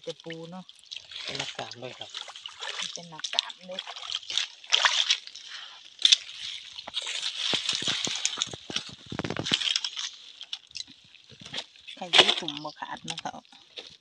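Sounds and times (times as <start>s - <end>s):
mesh trap rustling and rattling: 6.0s - 12.6s.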